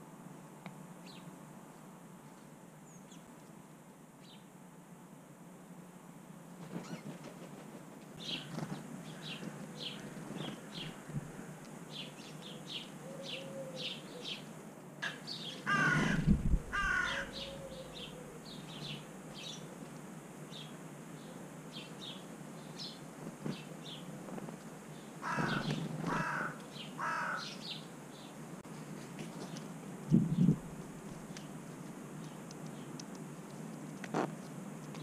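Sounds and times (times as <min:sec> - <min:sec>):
sparrows chirping: 0:08.2 - 0:11.0, 0:11.9 - 0:16.0, 0:16.8 - 0:19.7, 0:20.5 - 0:24.1, 0:24.9 - 0:28.4
crow cawing: 0:15.0 - 0:17.8, 0:25.2 - 0:27.6.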